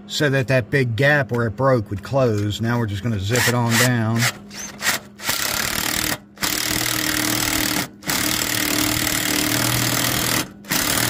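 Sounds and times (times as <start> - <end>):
power tool running down a nut: 3.4 - 11.0.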